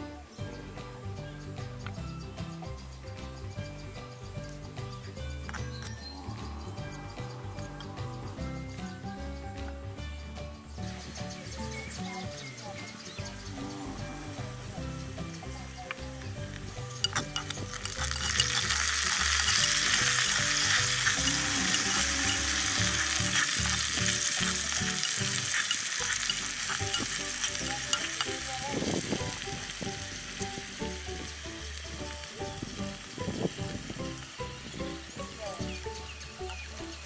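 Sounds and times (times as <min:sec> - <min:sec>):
sauce sizzling in hot oil: 0:10.8 - 0:37.0
spoon scraping clay pot: 0:16.6 - 0:28.9.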